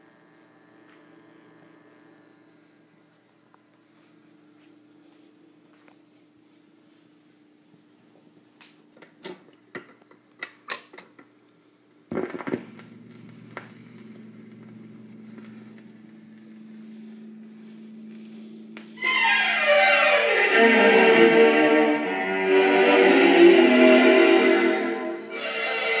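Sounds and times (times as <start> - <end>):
motor hum: 12.1 - 26.0
record playing music: 12.1 - 26.0.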